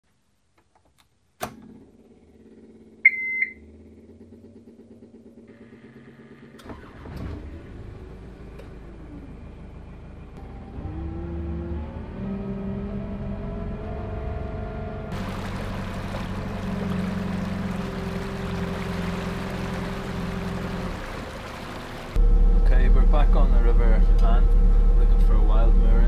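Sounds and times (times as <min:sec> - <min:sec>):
boat engine running: 0:15.1 - 0:26.0.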